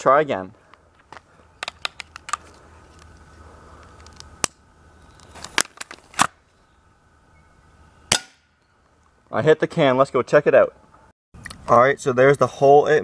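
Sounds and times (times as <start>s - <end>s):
gun barrel snapped shut: 5.4s - 6.4s.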